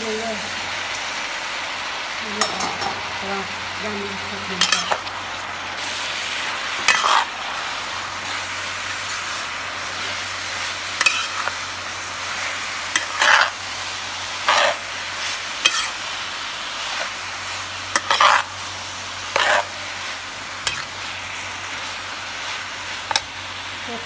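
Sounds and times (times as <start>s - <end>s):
noodles sizzling in a pan: 0.0s - 24.0s
metal spatula scraping a pan: 6.8s - 7.3s, 11.0s - 11.5s, 12.9s - 13.6s, 14.4s - 14.8s, 15.6s - 16.0s, 17.9s - 18.5s, 19.3s - 19.8s.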